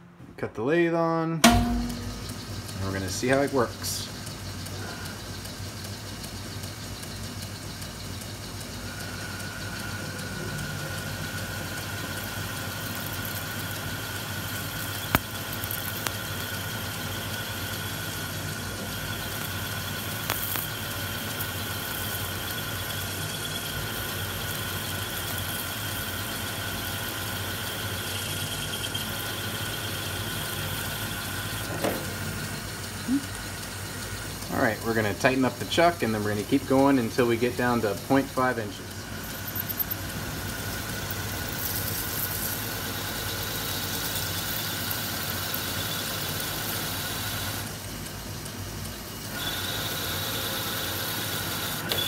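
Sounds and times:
lathe low hum: 0:01.4 - 0:52.0.

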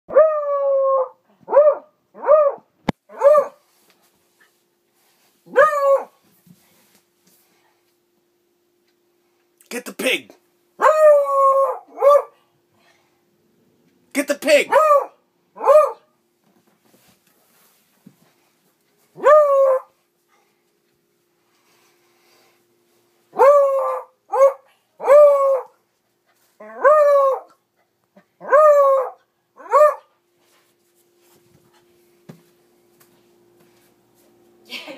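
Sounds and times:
dog barking: 0:01.5 - 0:03.6, 0:05.5 - 0:06.1, 0:10.8 - 0:12.4, 0:14.7 - 0:16.1, 0:19.2 - 0:19.9, 0:23.4 - 0:25.7, 0:28.4 - 0:30.1
dog baying: 0:10.8 - 0:12.4, 0:19.2 - 0:19.9
dog barking drawn-out barks: 0:11.8 - 0:12.4, 0:14.7 - 0:16.1, 0:28.4 - 0:30.1.

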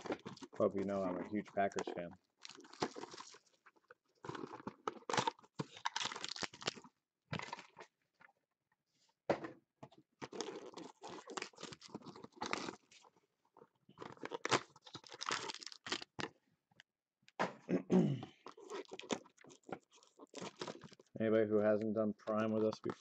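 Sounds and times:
foil pack crinkling: 0:00.0 - 0:07.9, 0:10.2 - 0:13.2, 0:14.0 - 0:16.3, 0:18.4 - 0:21.2, 0:22.2 - 0:23.0.

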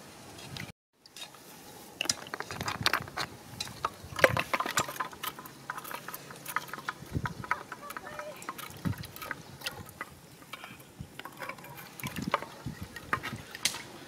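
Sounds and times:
snails clicking and rattling in pot: 0:02.0 - 0:14.0.

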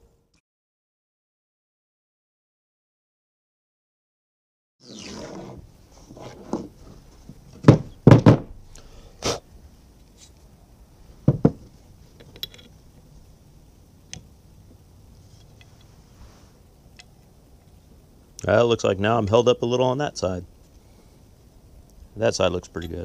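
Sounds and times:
metal parts knocking on wooden deck: 0:07.5 - 0:08.6, 0:11.2 - 0:12.7.

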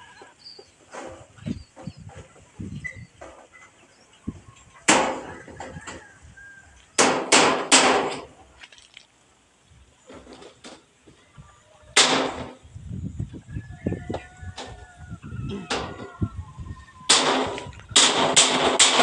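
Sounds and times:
metal roofing sheet clanging: 0:07.0 - 0:08.4, 0:12.0 - 0:12.6, 0:17.1 - 0:19.0.

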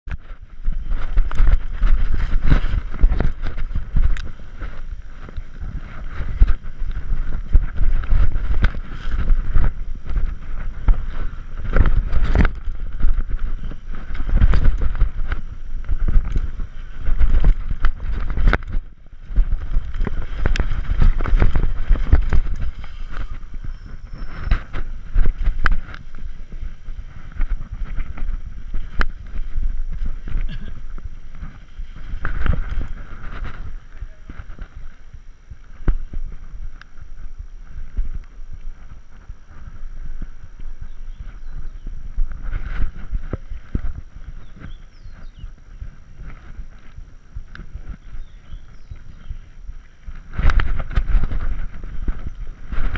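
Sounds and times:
bike knocking and rattling: 0:00.1 - 0:52.9
wind buffeting microphone: 0:00.1 - 0:52.9.

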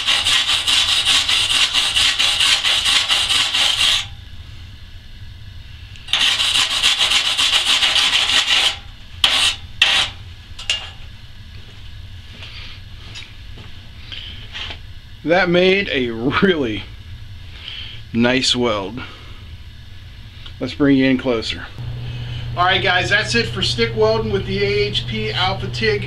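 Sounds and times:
wire brush scrubbing steel: 0:00.0 - 0:04.2, 0:06.1 - 0:11.0.

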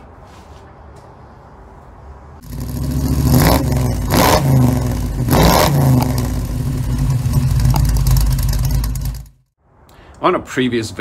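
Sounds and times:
car engine revving: 0:02.4 - 0:09.4.

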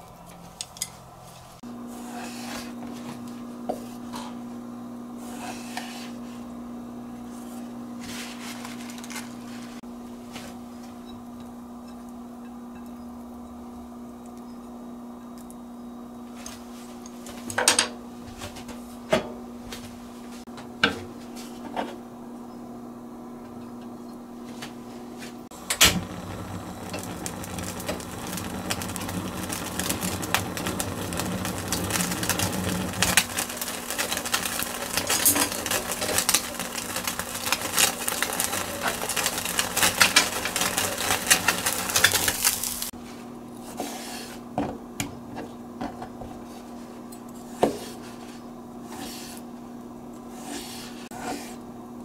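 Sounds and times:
fish crackling and popping: 0:25.5 - 0:42.9
low hum: 0:25.5 - 0:42.9
flame rushing: 0:25.5 - 0:43.0
gas burner ignition click: 0:25.6 - 0:30.4.

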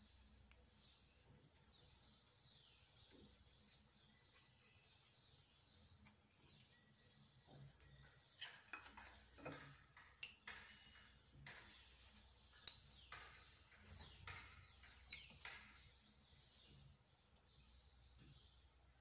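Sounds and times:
bird chirps: 0:00.0 - 0:19.0
hands tapping dough and dishes: 0:08.4 - 0:15.9.

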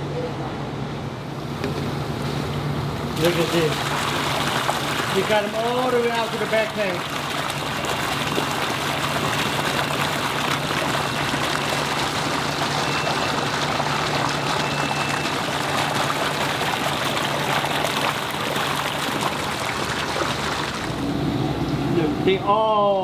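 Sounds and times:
water gushing from pipe into tank: 0:03.0 - 0:21.1.

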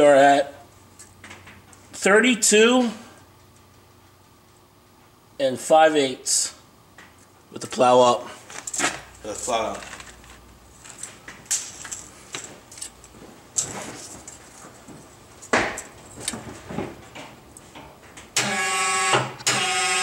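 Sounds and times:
hydraulic pump humming: 0:18.4 - 0:20.0.

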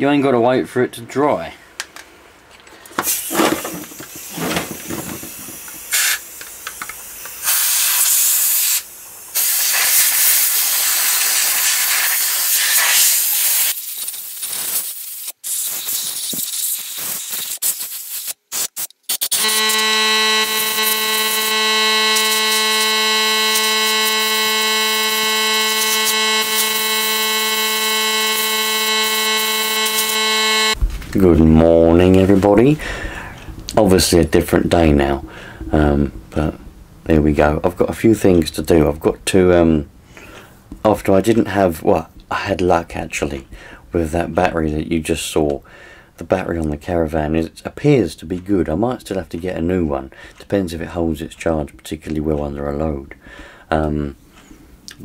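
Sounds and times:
compressed air blow gun hissing: 0:03.0 - 0:19.7
steady humming tone: 0:19.4 - 0:31.6.

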